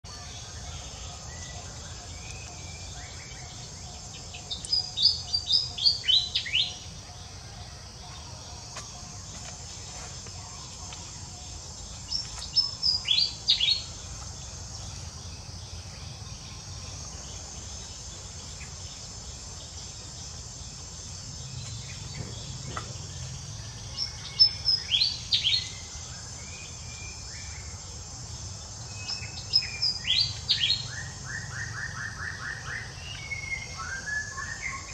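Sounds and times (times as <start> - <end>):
songbird chirping: 0.0 - 34.9
high insect drone: 0.1 - 34.9.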